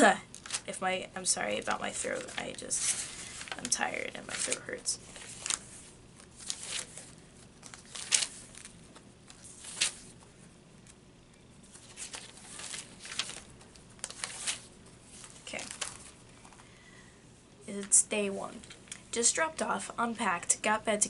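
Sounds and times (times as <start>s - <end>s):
paper pages rustling: 0.3s - 0.8s, 1.4s - 11.0s, 11.6s - 16.7s.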